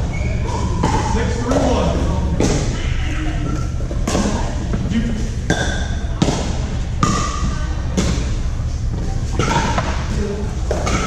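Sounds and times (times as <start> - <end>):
steady low rumble: 0.0 - 10.9.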